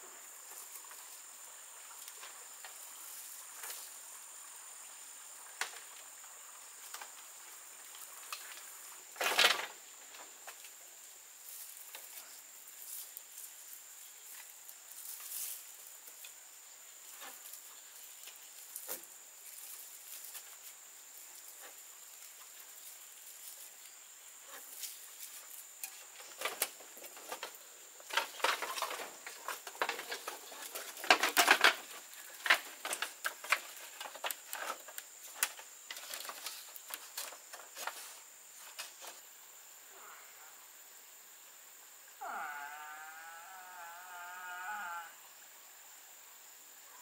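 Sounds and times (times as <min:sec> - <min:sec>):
dry leaves rustling and crackling: 0:11.4 - 0:16.3, 0:17.0 - 0:39.2.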